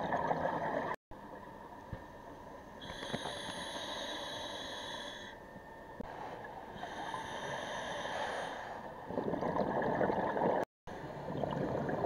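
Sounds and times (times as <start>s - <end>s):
regulator inhale hiss: 2.8s - 5.4s, 6.1s - 8.9s.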